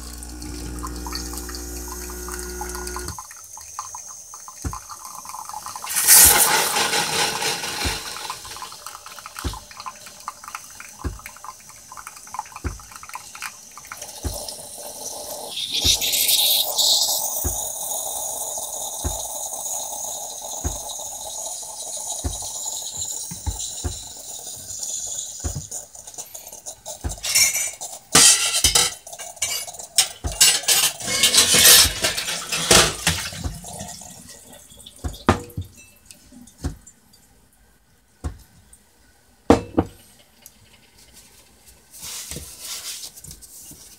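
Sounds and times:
coffee machine sputtering: 0:00.0 - 0:03.2, 0:04.7 - 0:09.7, 0:13.8 - 0:33.5
coffee pouring into cup: 0:00.0 - 0:35.8
steam hissing: 0:04.8 - 0:09.7, 0:13.5 - 0:28.8.

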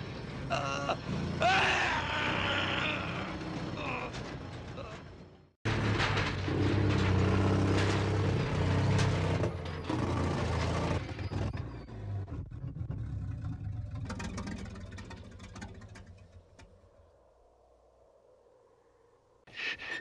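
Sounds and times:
truck engine running under load: 0:03.1 - 0:17.0.

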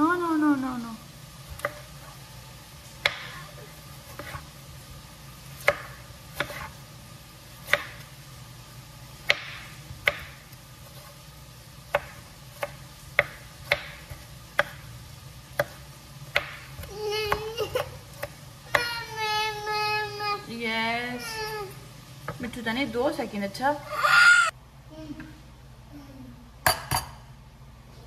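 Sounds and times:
low steady hum: 0:00.0 - 0:28.0
knife chopping on wooden board: 0:01.5 - 0:01.9, 0:03.0 - 0:03.4, 0:04.1 - 0:04.5, 0:05.6 - 0:06.8, 0:07.6 - 0:08.1, 0:09.2 - 0:11.1, 0:11.9 - 0:14.8, 0:15.6 - 0:17.5.

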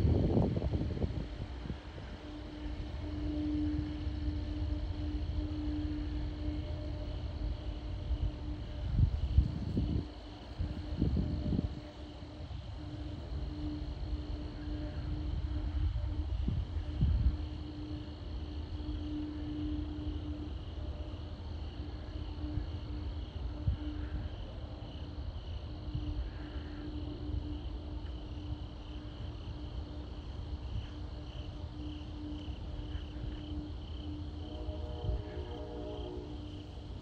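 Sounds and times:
wind buffeting microphone: 0:00.0 - 0:03.1, 0:07.6 - 0:14.1
crickets chirping: 0:00.0 - 0:37.0
low pulsing drone: 0:00.0 - 0:37.0.

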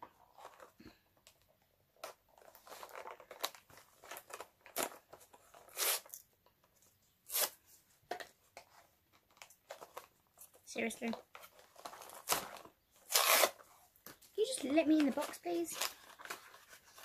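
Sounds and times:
cardboard box tearing: 0:02.5 - 0:06.2, 0:12.0 - 0:13.6.

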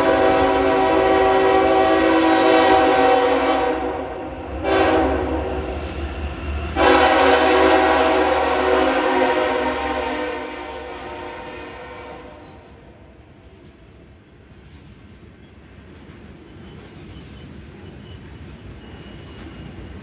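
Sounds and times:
locomotive air horn blasts: 0:00.0 - 0:05.8, 0:06.8 - 0:12.8
locomotive rumble: 0:00.0 - 0:20.0.

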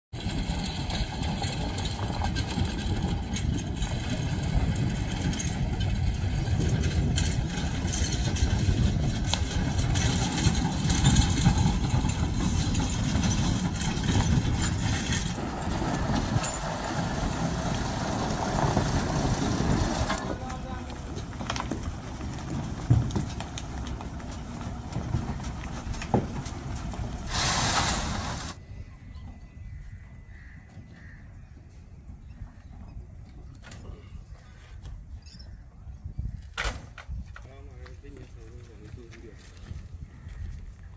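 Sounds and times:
truck diesel engine running: 0:00.2 - 0:28.6.

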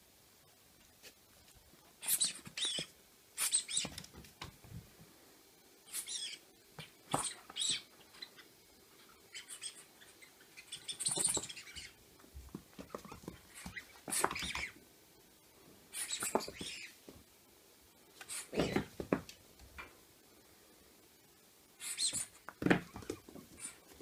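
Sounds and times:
squeaky rubber toy squeaks: 0:02.0 - 0:03.9, 0:05.9 - 0:06.4, 0:10.6 - 0:11.9, 0:13.7 - 0:14.7, 0:16.0 - 0:16.9.

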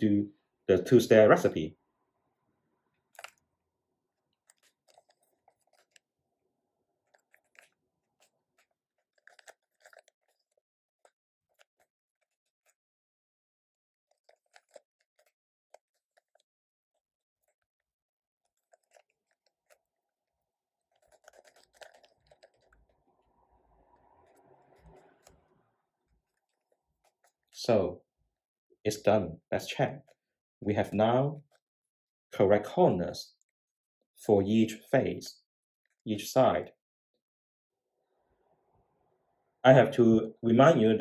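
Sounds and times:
puzzle cube clicking: 0:03.1 - 0:03.4, 0:08.6 - 0:10.6, 0:20.9 - 0:22.8.

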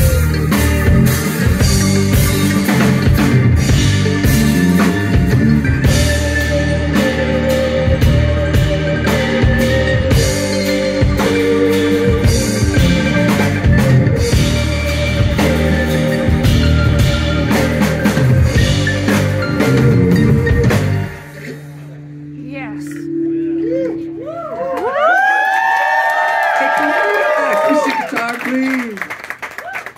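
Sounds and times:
drum kit: 0:00.0 - 0:21.8
electric bass: 0:00.0 - 0:25.4
electric guitar: 0:00.0 - 0:25.6.

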